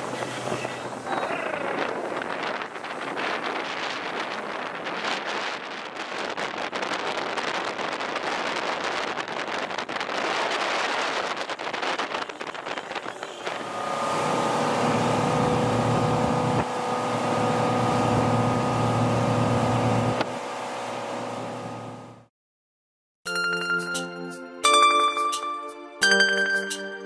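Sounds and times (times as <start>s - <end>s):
wind buffeting microphone: 0.0s - 20.3s
churning boat wake: 0.0s - 22.3s
motorboat engine running: 0.0s - 22.3s.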